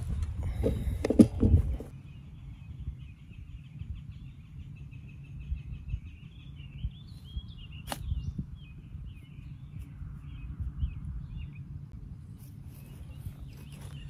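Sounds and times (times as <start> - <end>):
wind rumble: 0.0 - 13.6
songbird singing: 0.0 - 14.0.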